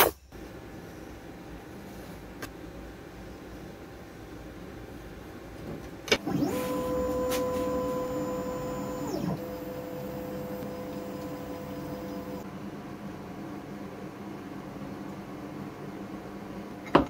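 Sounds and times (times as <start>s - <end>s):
faint steady hum: 0.1s - 16.8s
stepper motors whining: 6.2s - 12.4s.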